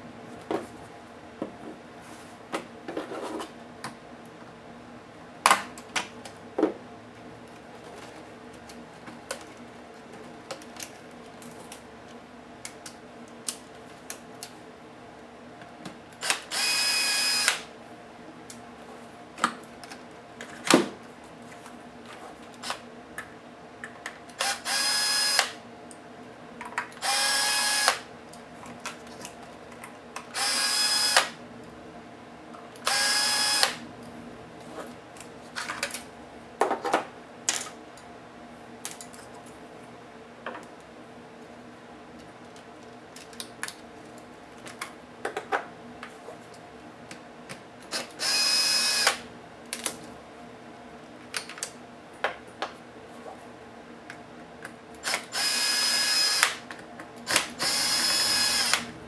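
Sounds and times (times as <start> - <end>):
cordless drill spinning: 16.2 - 17.6, 24.4 - 25.6, 27.0 - 28.0, 30.4 - 31.3, 32.8 - 33.8, 48.0 - 49.2, 55.1 - 56.5, 57.3 - 58.9.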